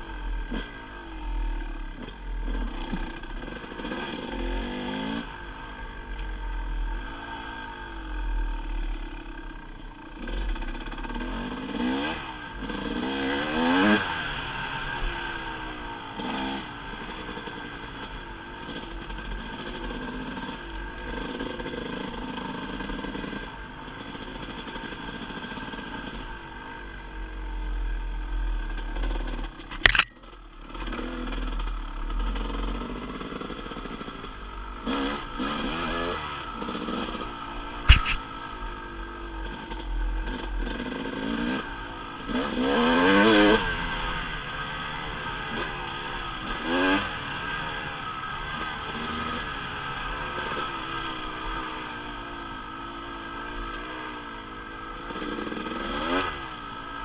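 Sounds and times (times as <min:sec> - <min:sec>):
dirt bike engine revving: 0:00.0 - 0:05.7, 0:06.6 - 0:26.8, 0:28.2 - 0:57.0
sharp knock: 0:37.8 - 0:38.2.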